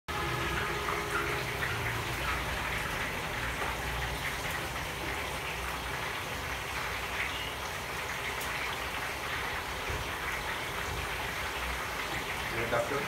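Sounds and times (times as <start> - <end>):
food frying in pans: 0.1 - 13.0.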